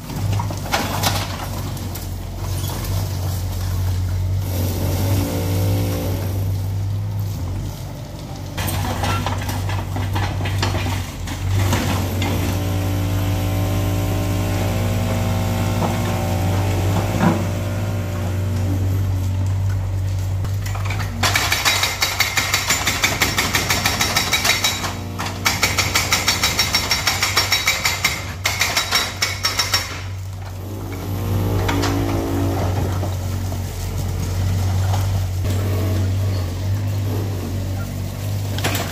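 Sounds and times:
excavator engine running: 0.0 - 38.9
hydraulic breaker hammering: 21.1 - 30.2.

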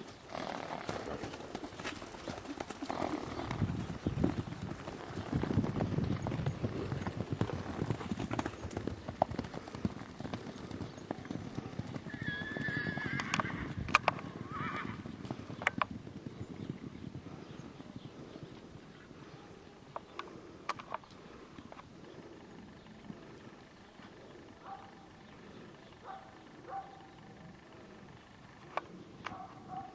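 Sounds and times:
horse hoofbeats galloping: 0.0 - 20.5
horse whinnying: 12.0 - 15.0.

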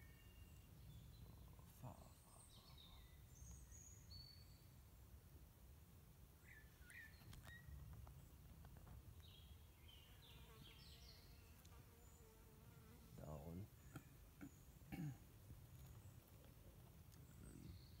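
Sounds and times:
distant bird calls: 6.4 - 8.5, 13.3 - 18.0.

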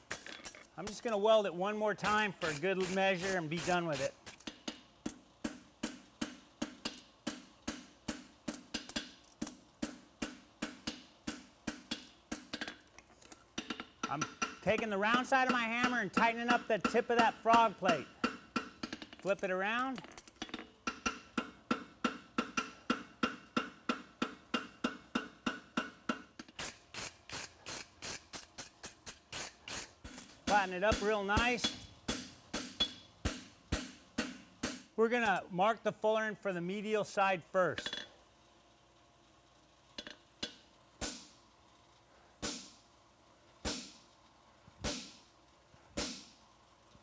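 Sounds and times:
hammer striking metal on anvil: 13.6 - 19.2, 20.4 - 26.3, 30.5 - 34.9.

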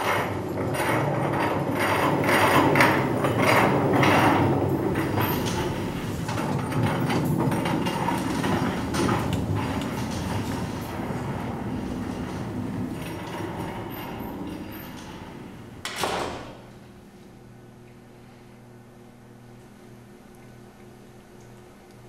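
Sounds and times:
mechanical rattling and clatter: 0.6 - 17.1
low rumble: 2.2 - 15.8.

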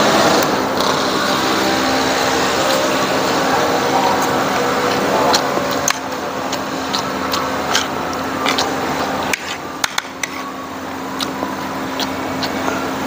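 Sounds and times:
steady background hum: 0.0 - 13.0
chewing: 0.3 - 13.0
cutlery scraping on plates: 6.9 - 11.4.

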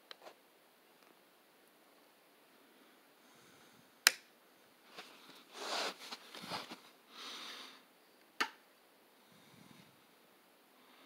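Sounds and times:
soft hissing handling noises: 4.8 - 8.3.

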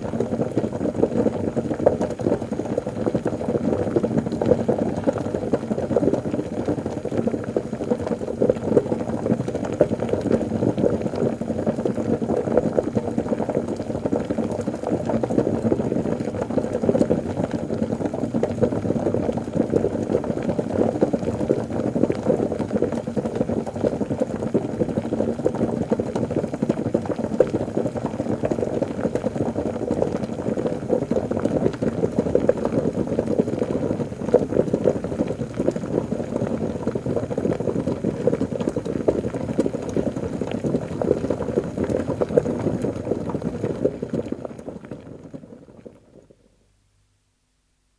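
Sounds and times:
liquid bubbling: 0.0 - 46.6.

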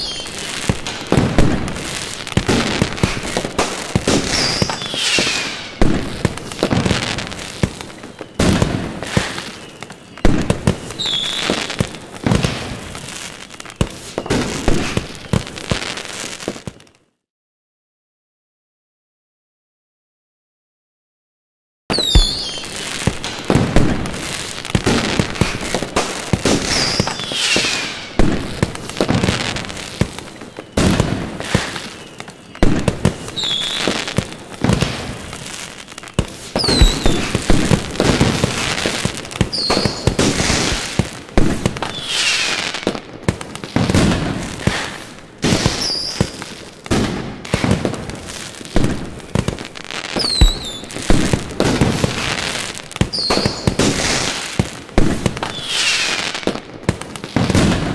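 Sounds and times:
fireworks crackling: 0.0 - 17.0, 21.9 - 57.9
fireworks shell bursts and bangs: 2.4 - 7.2, 21.9 - 24.0, 24.8 - 29.6, 36.2 - 43.0, 50.2 - 52.4, 53.0 - 54.3.

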